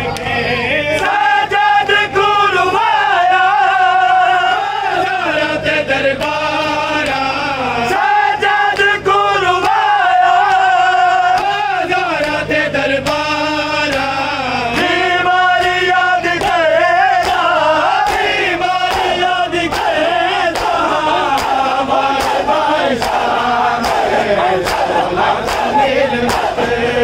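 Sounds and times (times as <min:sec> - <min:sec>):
men chanting a lament: 0:00.0 - 0:27.0
hands slapping chests: 0:17.2 - 0:26.6.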